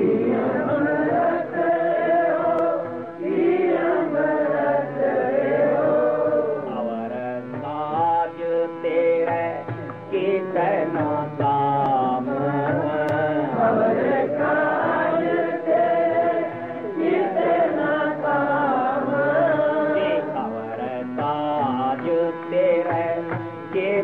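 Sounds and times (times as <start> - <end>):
voices chanting a melody: 12.2 - 20.2.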